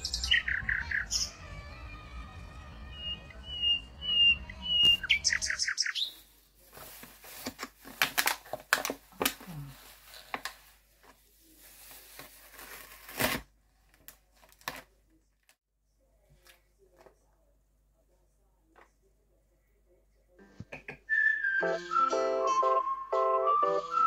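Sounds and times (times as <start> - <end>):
small bird chirping: 0.0 - 1.7, 2.9 - 6.3
plastic film crinkling: 6.0 - 14.9.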